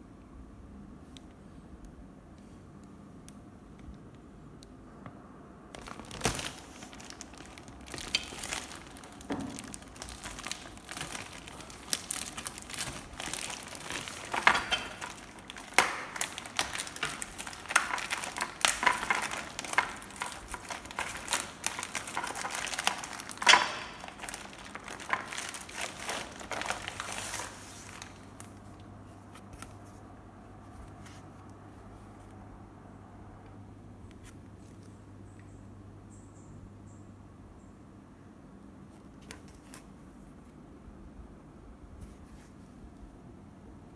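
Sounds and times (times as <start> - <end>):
plastic film crinkling: 5.7 - 30.0.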